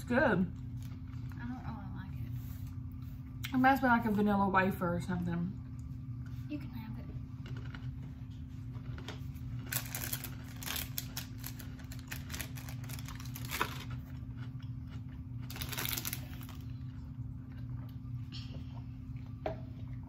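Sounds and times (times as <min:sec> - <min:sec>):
steady low hum: 0:00.0 - 0:20.0
snack packaging crinkling: 0:08.8 - 0:16.9.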